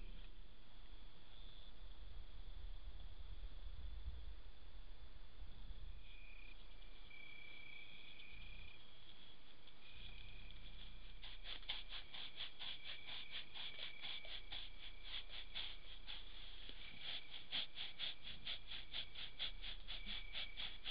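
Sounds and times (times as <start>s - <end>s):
rapid pulsed cricket chirps: 0.0s - 20.9s.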